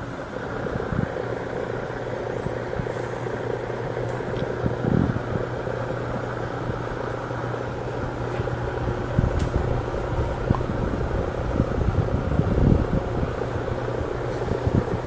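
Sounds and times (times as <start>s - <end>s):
electric machine humming: 0.0s - 15.0s.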